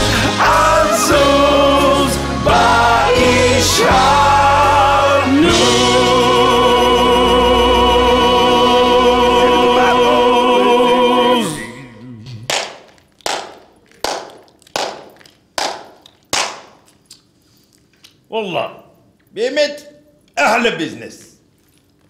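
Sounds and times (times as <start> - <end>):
man and chorus singing with band: 0.0 - 11.8
sharp echoing handclaps: 12.5 - 16.9.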